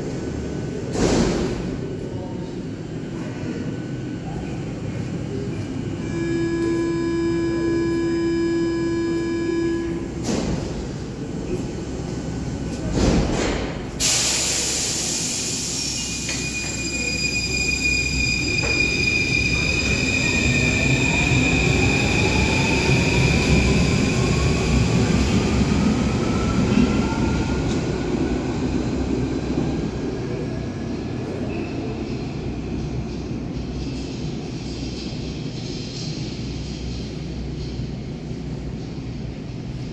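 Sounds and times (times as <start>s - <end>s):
door warning buzzer: 6.1s - 10.2s.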